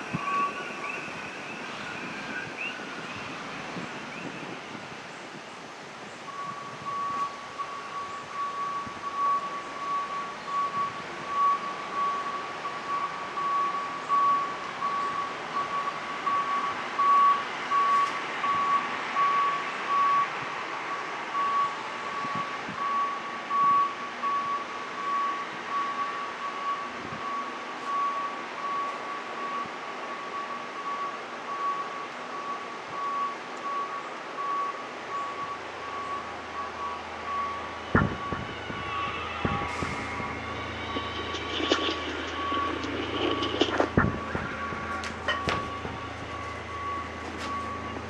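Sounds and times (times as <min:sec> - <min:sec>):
pulsing high electronic beep: 0:35.2 - 0:48.0.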